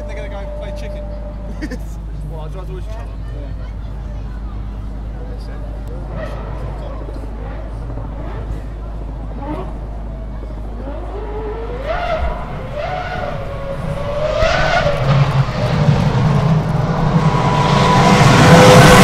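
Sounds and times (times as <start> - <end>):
race car engine revving: 4.6 - 19.0.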